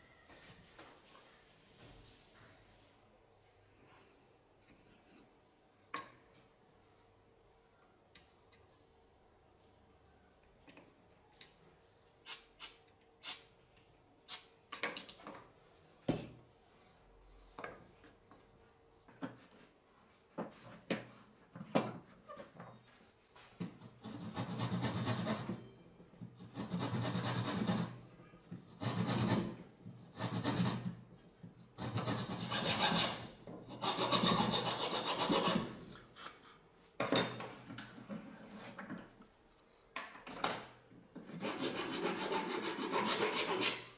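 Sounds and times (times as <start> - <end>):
hand saw cutting wood: 31.8 - 35.7, 41.3 - 43.9.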